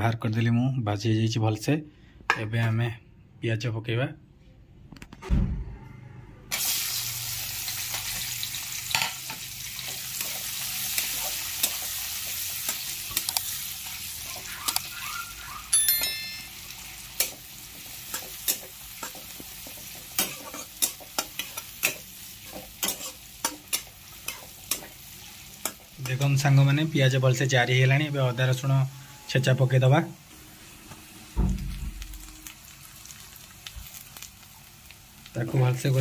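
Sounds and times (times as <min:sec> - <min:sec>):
onions sizzling in hot oil: 0:06.5 - 0:15.8, 0:16.4 - 0:36.0
short high chime: 0:15.7 - 0:16.6
metal spatula scraping pan: 0:18.1 - 0:25.0.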